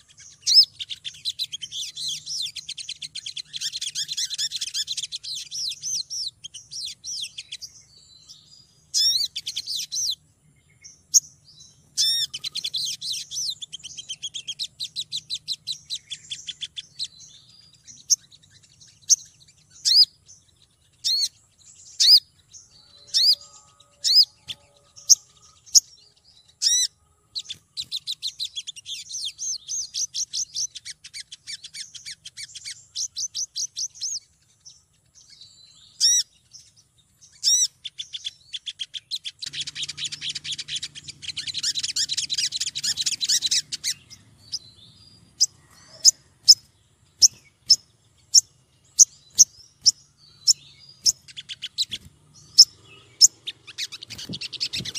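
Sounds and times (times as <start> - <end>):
sunbird chirps and trills: 0.0 - 54.9.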